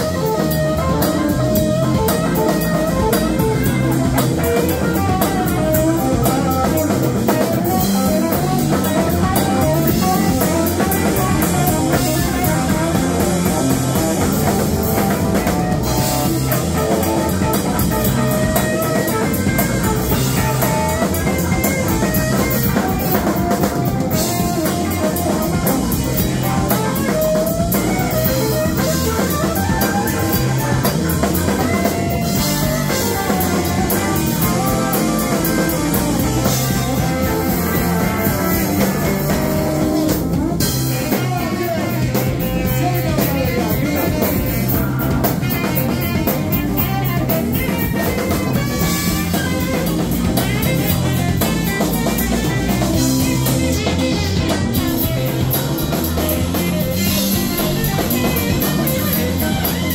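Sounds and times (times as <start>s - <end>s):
bass guitar: 0.0s - 59.9s
drum kit with cymbals: 0.0s - 59.9s
electric guitar: 0.0s - 59.9s.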